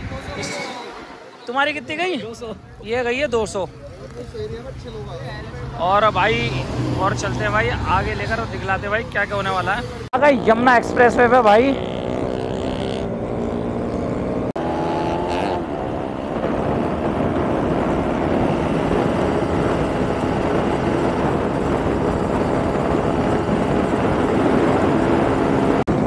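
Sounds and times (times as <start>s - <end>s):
motorcycle engine running: 10.2s - 26.0s
wind rush: 14.6s - 26.0s.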